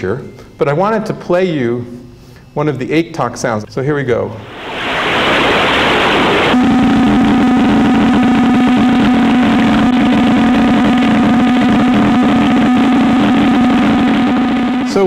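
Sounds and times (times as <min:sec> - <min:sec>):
steady pulsing hum: 0:04.3 - 0:15.0.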